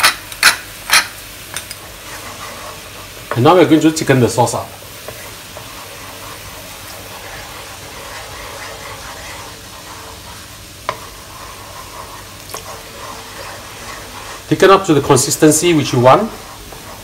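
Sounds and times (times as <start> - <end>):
sauce bubbling with hiss: 0.0 - 17.0
spatula knocking on pan: 10.8 - 11.4.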